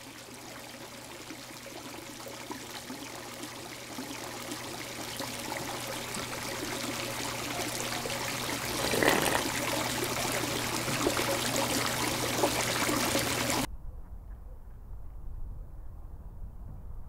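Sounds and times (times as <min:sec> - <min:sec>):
water churning and bubbling: 0:00.0 - 0:13.7.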